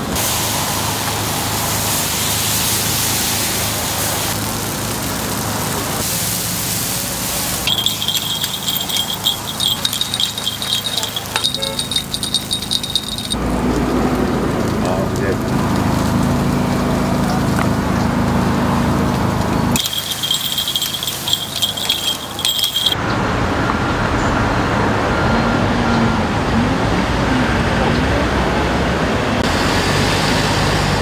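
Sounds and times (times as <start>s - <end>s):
batter sizzling on a griddle: 0.2s - 7.7s
rapid metallic clicking and ringing: 7.6s - 13.4s, 19.8s - 23.0s.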